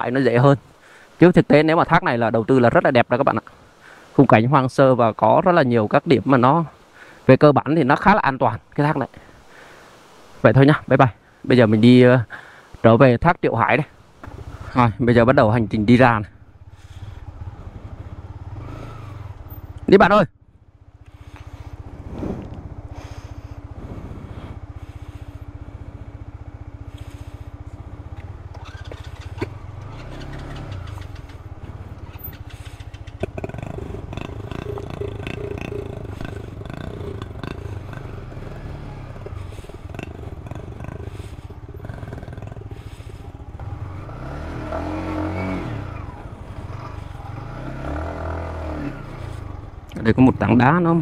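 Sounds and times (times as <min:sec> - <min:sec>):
motorcycle engine running: 0:14.2 - 0:51.0.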